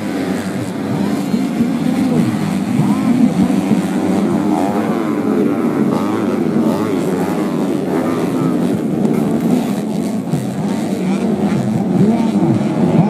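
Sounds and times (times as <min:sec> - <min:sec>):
motorcycle engines racing: 0:00.0 - 0:13.0.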